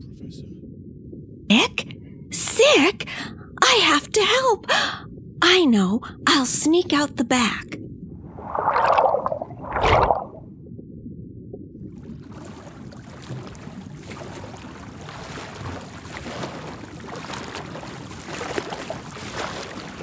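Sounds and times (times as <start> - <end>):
low watery rumble: 0.0 - 20.0.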